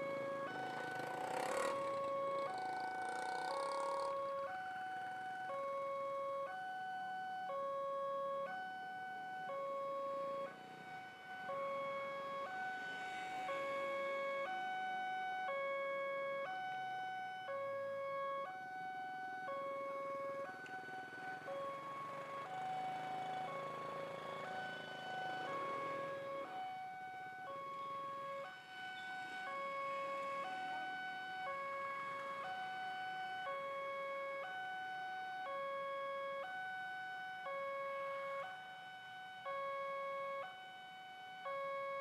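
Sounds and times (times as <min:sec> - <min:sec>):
passing road vehicle: 0:00.0 - 0:05.6, 0:10.1 - 0:17.5, 0:18.8 - 0:34.6
level crossing two-tone alarm: 0:00.0 - 0:42.0.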